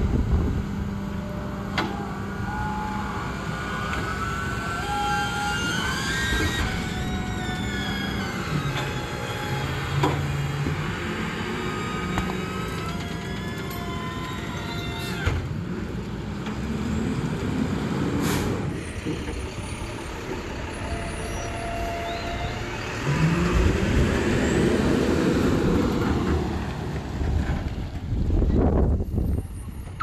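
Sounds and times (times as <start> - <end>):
diesel truck engine accelerating: 0.0 - 30.0
air brake hiss: 18.2 - 18.6.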